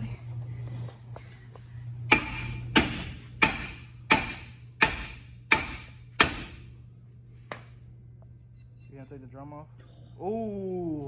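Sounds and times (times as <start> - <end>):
hammer striking metal drum: 2.1 - 6.6.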